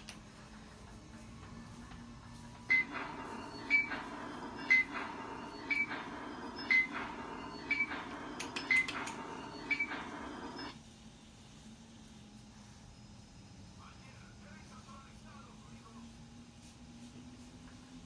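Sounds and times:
electrical device humming: 0.0 - 11.8.

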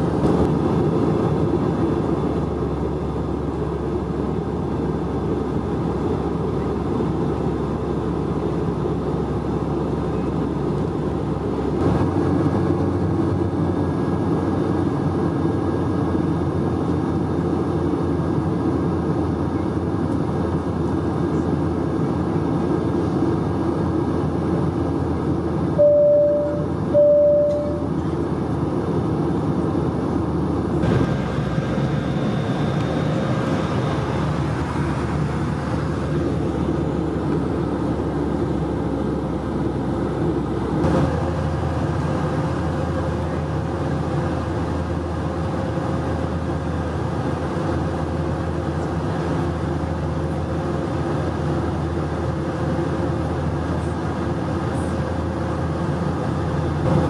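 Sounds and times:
jet engine drone in cabin: 0.0 - 57.0
short tones: 25.8 - 27.9
airflow: 28.8 - 39.5.

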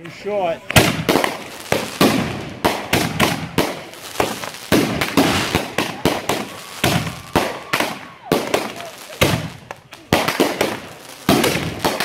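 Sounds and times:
fireworks crackling: 0.0 - 12.0
fireworks bangs: 0.6 - 12.0.

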